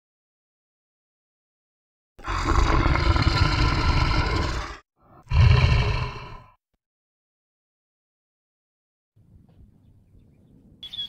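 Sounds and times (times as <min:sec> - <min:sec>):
lion roaring: 0:02.2 - 0:06.6.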